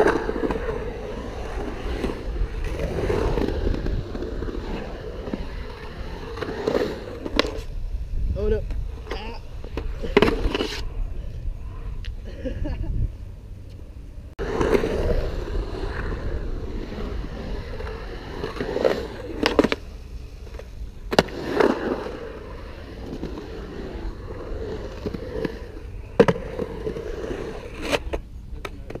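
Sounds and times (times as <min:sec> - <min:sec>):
skateboard wheels rolling on concrete: 0:00.0 - 0:29.0
skateboard clacks: 0:27.6 - 0:29.0.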